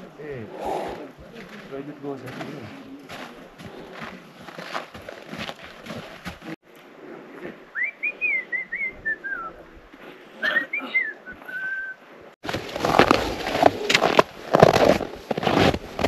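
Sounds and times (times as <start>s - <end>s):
footsteps crunching in snow: 1.2s - 6.6s, 12.4s - 16.0s
person whistling: 7.8s - 9.6s, 10.5s - 12.0s.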